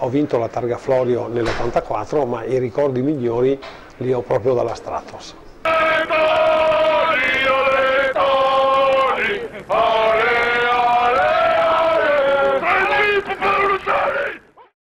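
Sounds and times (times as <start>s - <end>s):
man singing: 5.7s - 14.5s.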